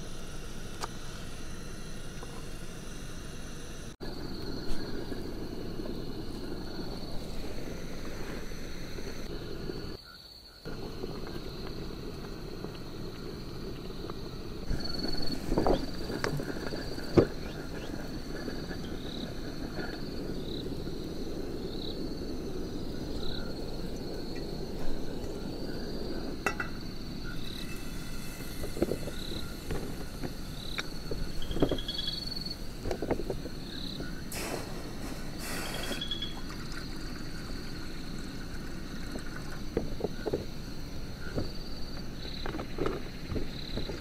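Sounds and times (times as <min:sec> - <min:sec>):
steady low rumble: 0:00.0 - 0:10.0, 0:10.7 - 0:44.0
frog or insect chirping: 0:00.0 - 0:44.0
brief hiss: 0:34.3 - 0:36.8.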